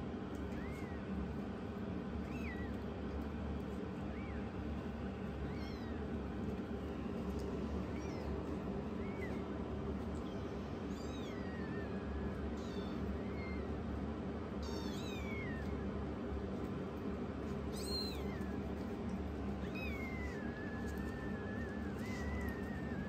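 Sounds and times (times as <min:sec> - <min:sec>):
kittens mewing: 0:04.0 - 0:06.4, 0:07.4 - 0:16.1, 0:17.0 - 0:23.0.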